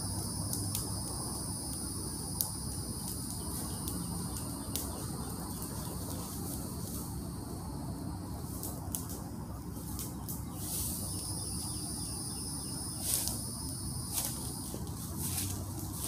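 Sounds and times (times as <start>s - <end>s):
insects singing: 0.0s - 16.0s
sharp snaps: 2.4s - 5.0s.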